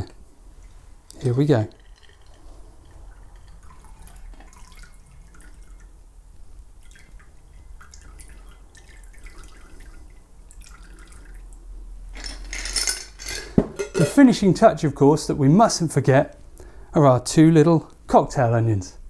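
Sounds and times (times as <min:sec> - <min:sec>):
liquid trickling into glass: 0:00.6 - 0:06.0, 0:06.8 - 0:11.7
ice clicking in jar: 0:01.2 - 0:04.9.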